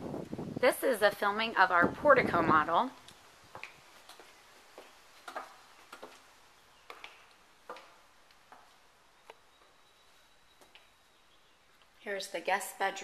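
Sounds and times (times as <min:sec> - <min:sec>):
footsteps on hard floor: 0:03.6 - 0:09.8.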